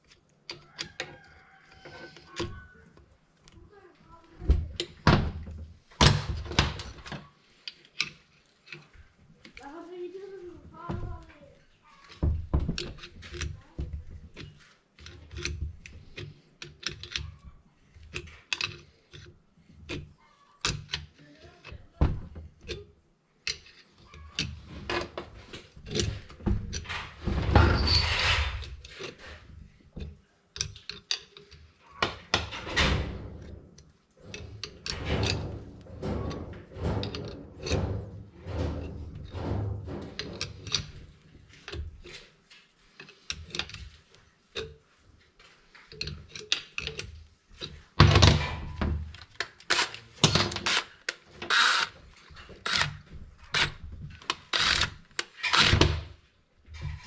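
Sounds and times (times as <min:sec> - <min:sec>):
wrench clanking on metal: 0:11.9 - 0:42.3, 0:49.7 - 0:56.1
metal scraping on workbench: 0:23.6 - 0:29.8, 0:32.4 - 0:43.3.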